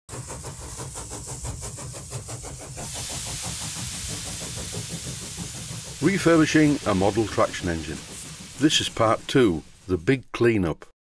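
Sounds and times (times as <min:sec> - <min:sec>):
steam engine exhaust beats: 0:00.1 - 0:10.4
steam hissing: 0:00.1 - 0:10.4
low rumble: 0:02.8 - 0:10.1.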